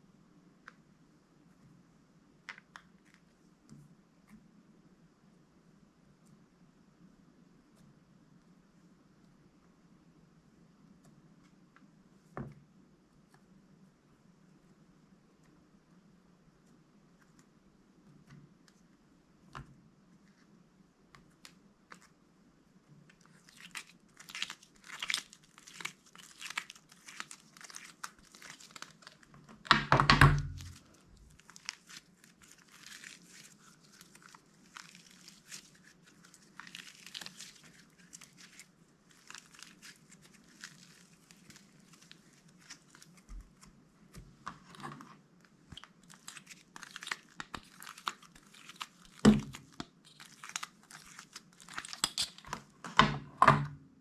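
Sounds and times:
slime crackling and popping: 23.2s - 43.7s, 45.7s - 52.6s.

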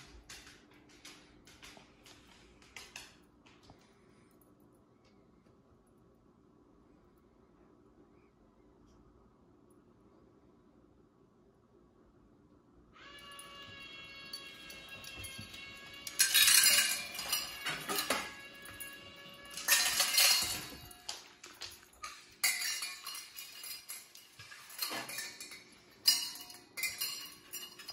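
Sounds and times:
pet feeder whining: 13.0s - 27.9s
light metallic clinks: 13.7s - 27.9s
kibble clattering in metal bowls: 14.3s - 27.9s.

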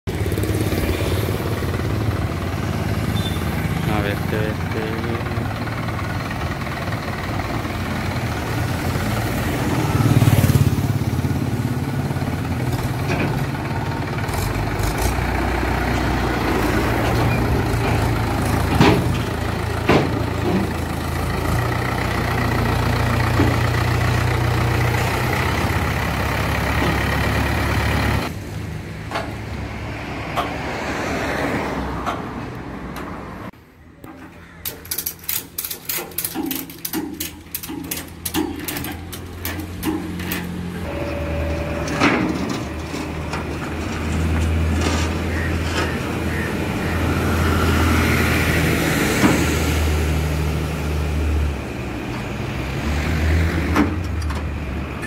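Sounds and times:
diesel tractor engine running: 0.1s - 30.7s, 31.7s - 55.0s
metal clanks: 17.0s - 20.9s, 34.0s - 45.9s.

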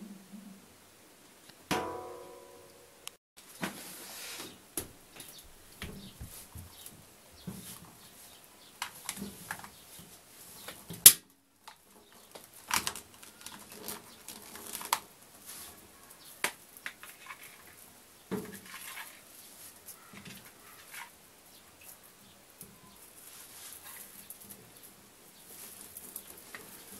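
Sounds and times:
hose rustling against sheet metal: 3.4s - 11.1s, 17.0s - 21.2s, 23.1s - 26.9s.

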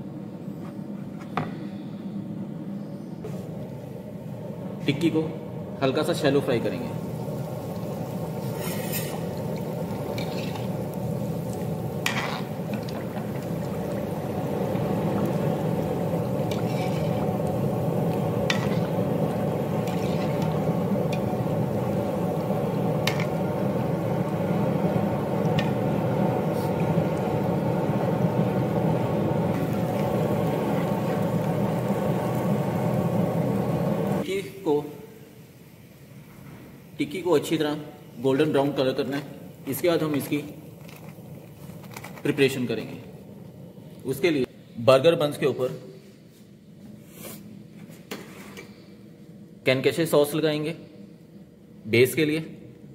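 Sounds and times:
food sizzling in hot oil: 5.8s - 34.3s.

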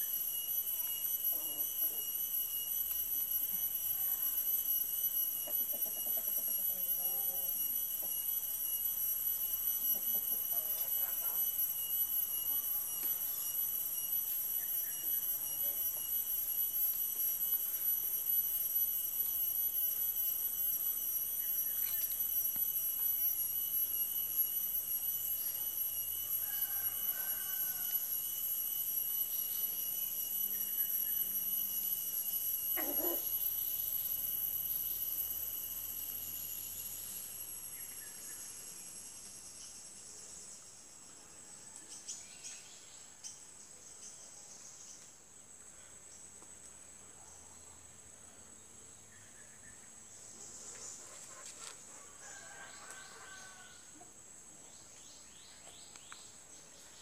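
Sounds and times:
high-pitched multi-tone ringing: 0.0s - 32.7s.

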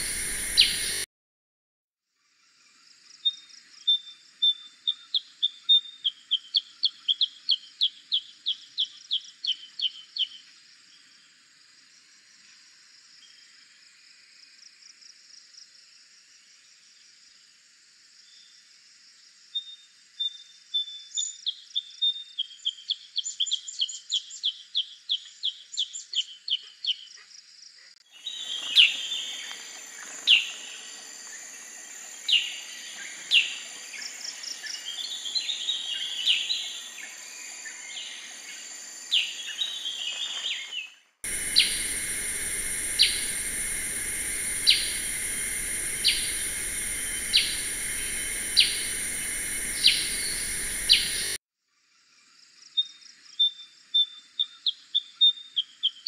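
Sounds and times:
bird chirping: 0.0s - 1.0s, 28.1s - 31.5s, 32.2s - 51.4s
sharp bird notes: 0.0s - 1.0s, 41.3s - 51.4s
high-pitched hiss: 0.0s - 1.1s, 28.1s - 40.6s, 41.3s - 51.4s.

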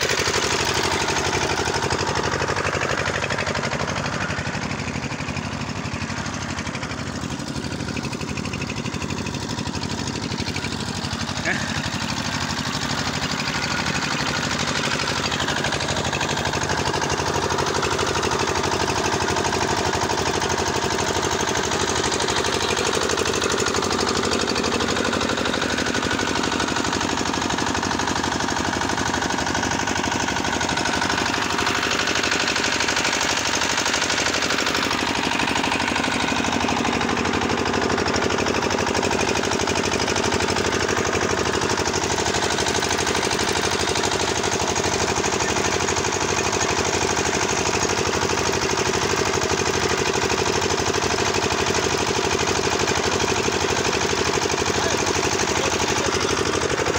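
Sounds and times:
small engine knocking steadily: 0.0s - 56.9s.

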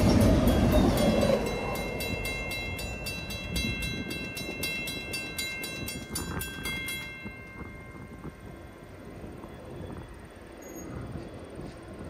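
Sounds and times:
crossing bell ringing: 0.0s - 10.9s
freight train rumbling: 0.0s - 12.0s.

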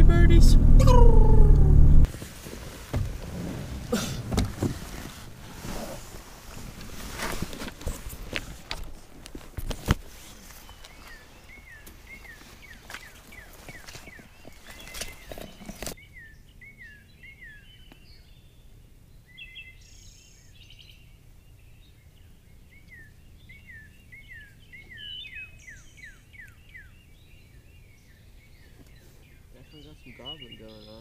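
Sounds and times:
rustling through brush: 2.0s - 16.0s
songbird whistling: 22.7s - 27.1s.

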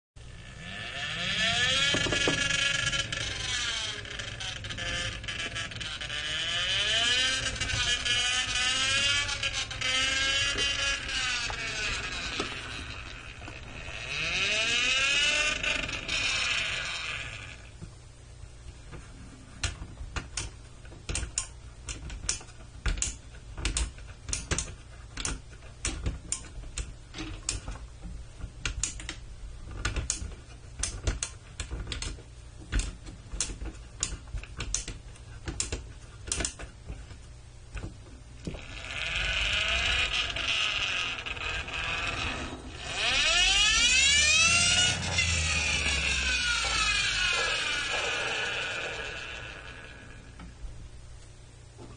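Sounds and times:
toy friction gear whirring: 0.3s - 17.7s, 38.5s - 50.5s.

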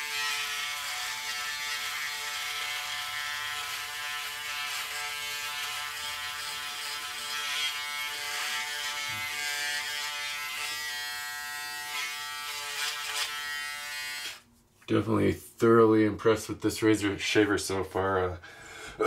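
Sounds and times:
electric shaver humming: 0.0s - 14.4s.

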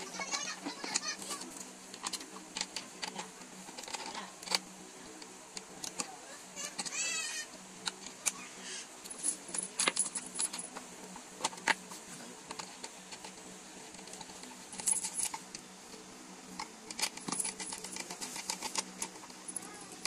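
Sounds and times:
faint steady hum: 0.0s - 20.0s
metal hardware clinking: 9.0s - 10.8s, 13.9s - 15.5s, 16.6s - 19.6s.

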